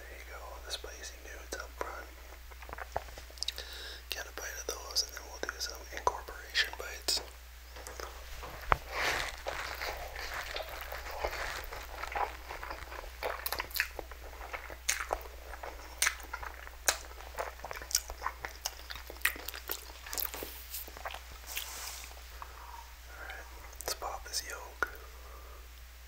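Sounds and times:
wet mouth clicks and smacks: 2.5s - 3.6s, 10.5s - 21.7s
noodles slurped and chewed: 7.8s - 22.5s.

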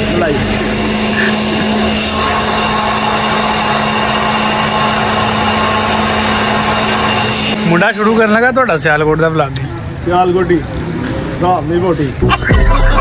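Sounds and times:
machine humming: 0.0s - 8.6s
high machine whine: 0.0s - 9.2s, 12.1s - 13.0s.

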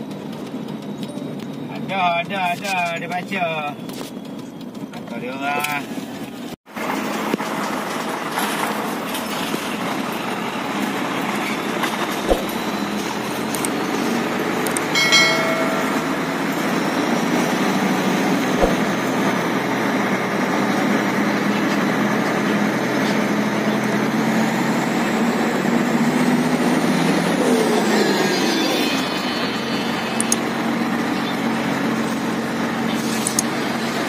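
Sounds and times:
diesel truck engine running: 0.0s - 34.0s
short high-pitched tone: 15.0s - 17.2s.

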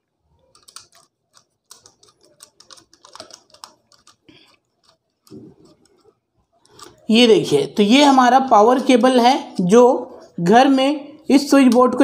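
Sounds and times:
small clicks and rustles of wire: 0.4s - 7.0s.

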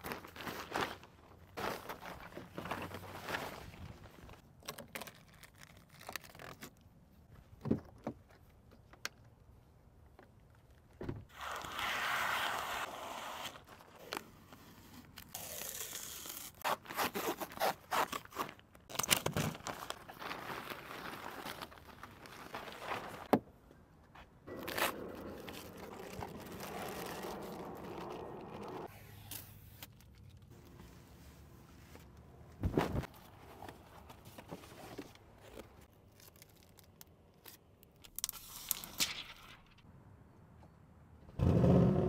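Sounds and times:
protective film crinkling and tearing: 4.6s - 6.8s, 24.5s - 30.6s, 35.8s - 39.8s
cardboard scraping: 24.5s - 28.9s.

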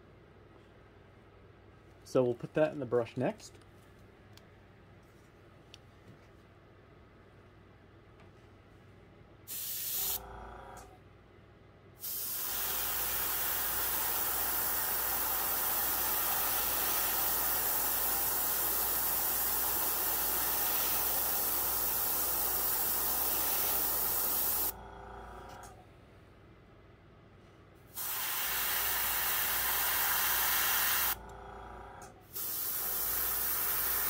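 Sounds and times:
airbrush spraying hiss: 9.5s - 10.2s, 12.0s - 24.8s, 27.9s - 31.2s, 32.3s - 34.0s.

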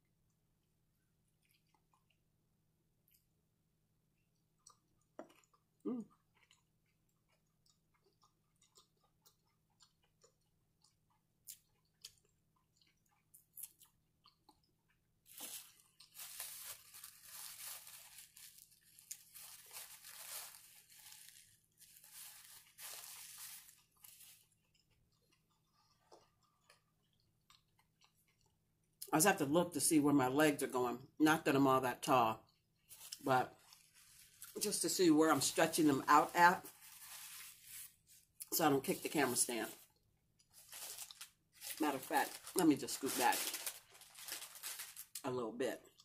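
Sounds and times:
person chewing softly: 0.0s - 29.1s, 32.4s - 34.7s, 36.6s - 38.6s, 39.6s - 42.6s, 45.8s - 46.0s
dense crunching: 15.3s - 24.8s.

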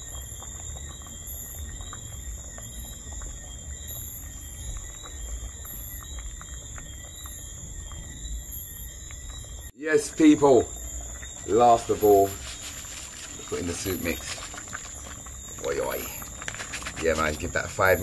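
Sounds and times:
insects chirping: 0.0s - 18.0s
soup boiling and bubbling: 0.0s - 18.0s
wooden spoon stirring: 10.5s - 18.0s.

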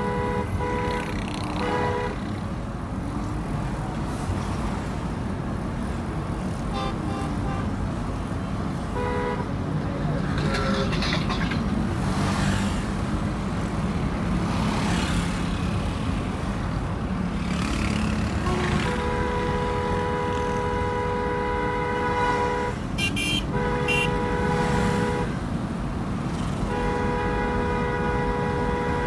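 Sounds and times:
car horn toots: 0.0s - 2.2s, 8.9s - 9.5s, 18.4s - 25.4s, 26.7s - 29.0s
road and engine rumble: 0.0s - 29.0s
vehicles passing: 0.0s - 29.0s.

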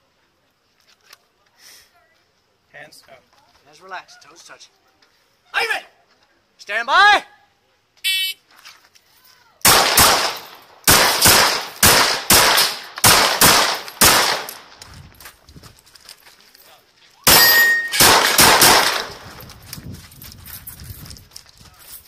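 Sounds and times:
pistol gunshots: 9.6s - 14.7s, 17.3s - 19.4s
high ringing tone: 17.3s - 18.0s.

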